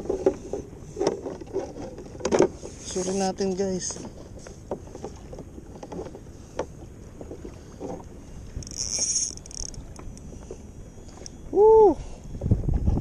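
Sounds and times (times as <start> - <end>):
light knocks on hull: 0.0 - 2.7
water sloshing against kayak hull: 0.0 - 13.0.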